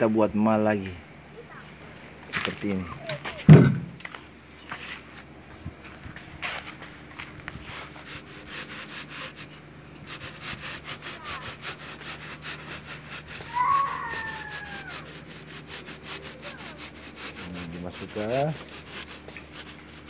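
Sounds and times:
rhythmic rasping scrapes on concrete: 6.4s - 20.0s
loud high squeal: 13.4s - 15.2s.

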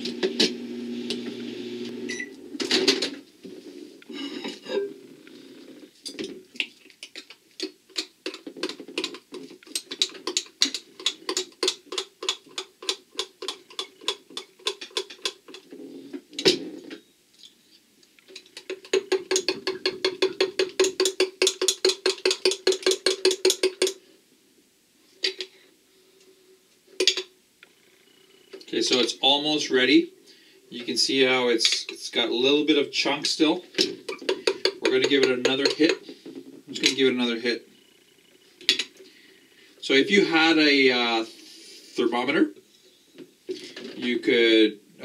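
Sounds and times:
spoon knocking on glass: 18.7s - 24.0s, 34.1s - 36.0s.

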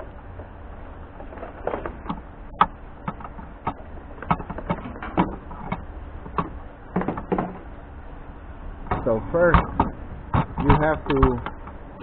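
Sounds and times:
low steady rumble: 0.0s - 12.0s
irregular sharp clicks and knocks: 1.7s - 7.7s.

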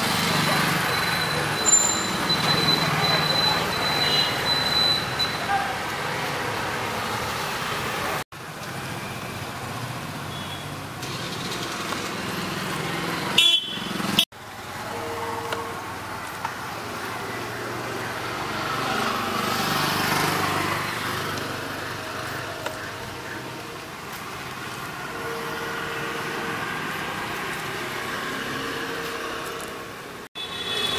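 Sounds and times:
distant street traffic: 0.0s - 30.9s
high horn toot: 13.4s - 14.0s, 14.8s - 15.8s, 30.4s - 30.9s.

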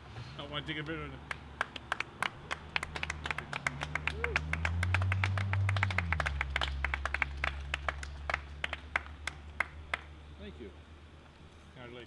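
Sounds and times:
low vehicle engine drone: 0.0s - 11.8s
crowd clapping: 0.8s - 10.1s.

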